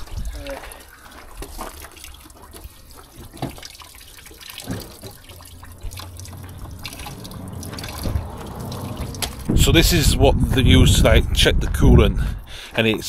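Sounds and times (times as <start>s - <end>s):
coolant trickling out: 0.0s - 9.7s.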